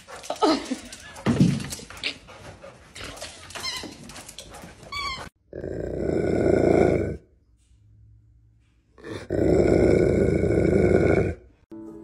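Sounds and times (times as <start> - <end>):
dog whining: 4.8 - 5.4
dog growling grunt: 5.5 - 7.2, 9.0 - 11.4.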